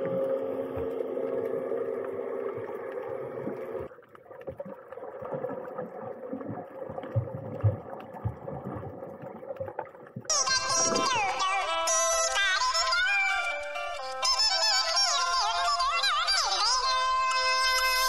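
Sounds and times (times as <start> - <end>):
boat engine droning underwater: 0.0 - 11.3
gurgling water: 0.0 - 11.4
low thumps underwater: 2.5 - 11.3.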